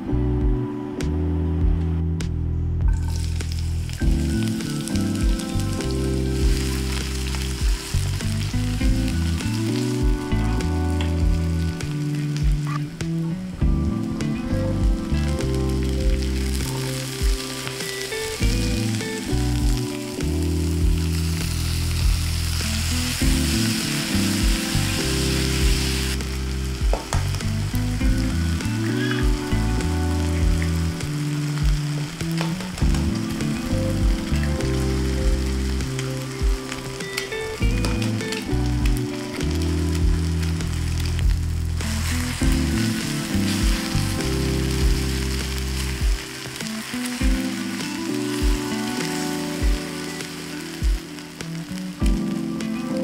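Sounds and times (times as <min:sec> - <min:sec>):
soft background music: 0:00.0 - 0:53.0
food sizzling in a pan: 0:03.0 - 0:53.0.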